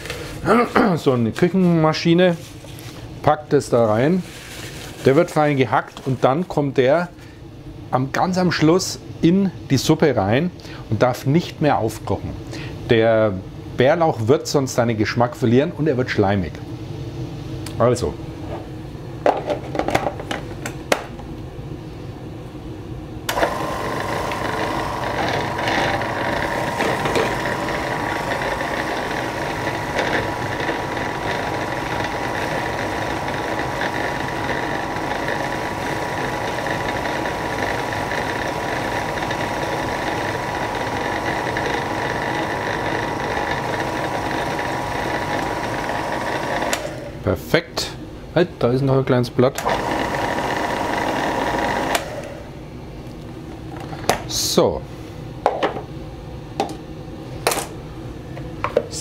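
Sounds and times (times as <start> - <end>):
food processor clicks: 23.3 - 47.0, 49.6 - 52.4
food processor motor whining: 23.3 - 47.2, 49.6 - 52.5.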